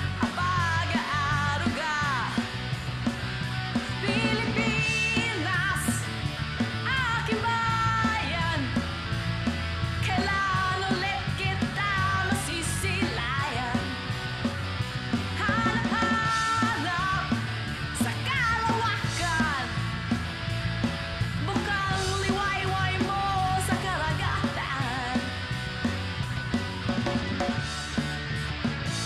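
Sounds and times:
rock band playing: 0.0 - 29.0
woman singing: 0.2 - 2.5, 3.8 - 6.1, 6.8 - 8.8, 10.0 - 14.0, 15.4 - 19.9, 21.3 - 25.4.

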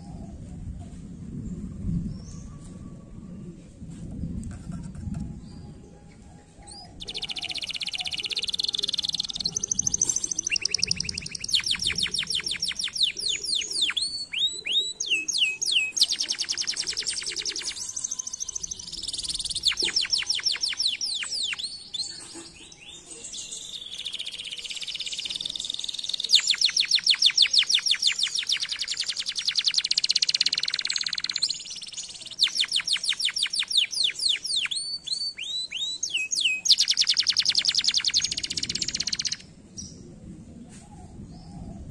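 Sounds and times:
canary singing: 6.7 - 39.5.

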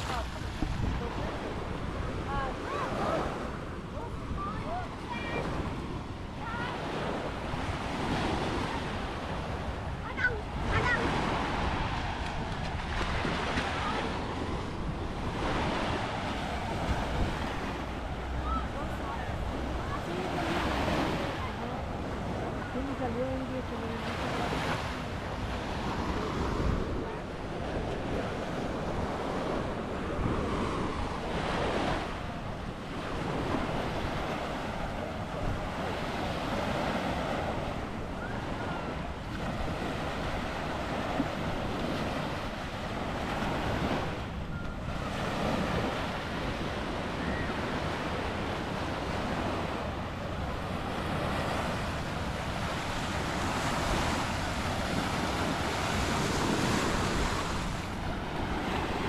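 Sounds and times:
ocean surf washing on beach: 0.0 - 59.0
wind buffeting microphone: 0.0 - 59.0.

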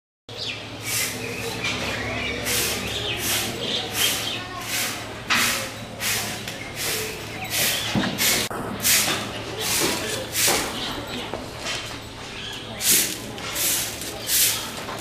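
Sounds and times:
birds chirping and cooing: 0.3 - 4.8, 5.6 - 8.5.

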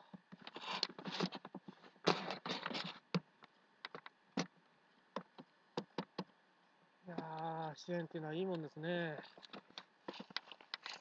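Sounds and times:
light clicks and crackles: 7.1 - 11.0.

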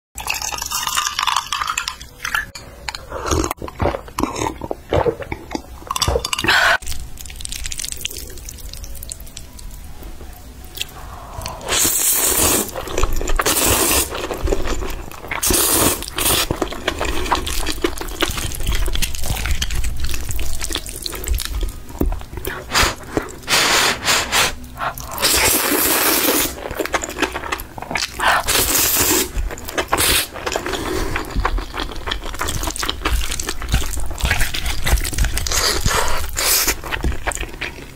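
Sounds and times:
person slurping noodles: 11.1 - 14.2, 22.5 - 26.6, 28.0 - 31.4, 34.6 - 36.9
chewing and smacking: 12.7 - 23.4, 24.8 - 37.9.

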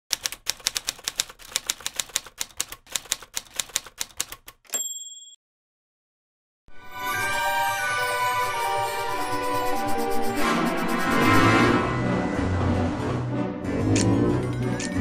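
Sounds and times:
typewriter keystroke clacks: 0.1 - 4.7
typewriter bell ding: 4.7 - 5.4.

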